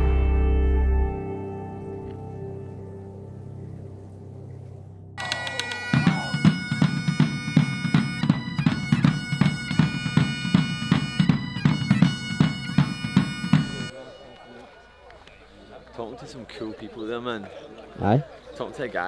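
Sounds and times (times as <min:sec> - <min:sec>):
bagpipes playing with drones: 0:05.2 - 0:15.6
big drums beating: 0:05.5 - 0:13.9.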